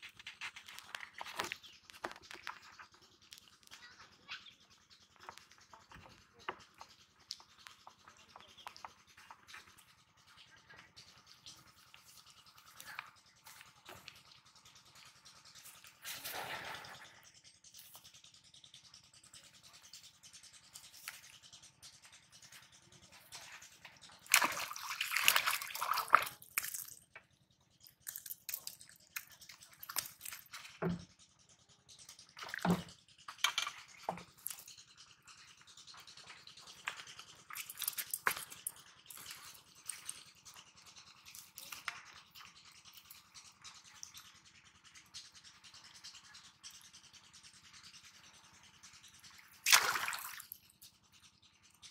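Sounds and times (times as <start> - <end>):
fish splashing in water: 19.4 - 27.1, 27.8 - 30.8, 32.2 - 47.1, 47.7 - 51.0.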